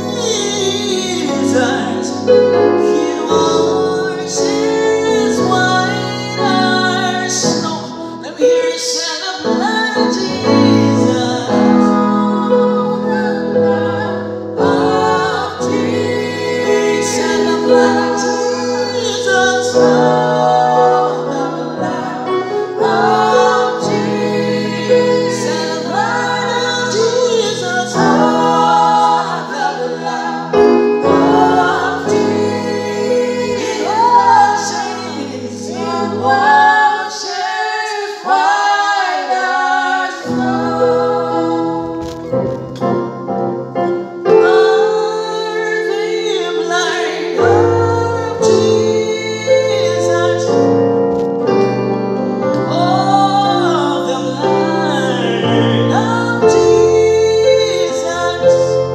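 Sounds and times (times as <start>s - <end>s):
man singing gospel song: 0.0s - 42.2s, 44.3s - 50.7s, 52.5s - 58.9s
electronic keyboard chords: 9.6s - 37.0s, 39.5s - 58.9s.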